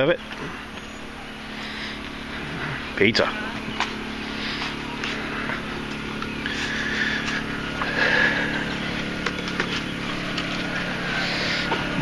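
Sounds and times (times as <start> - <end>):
motor humming: 0.0 - 12.0.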